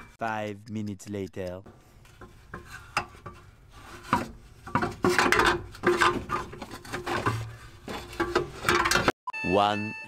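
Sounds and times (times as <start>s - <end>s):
metal clanks and scrapes: 1.7s - 9.1s.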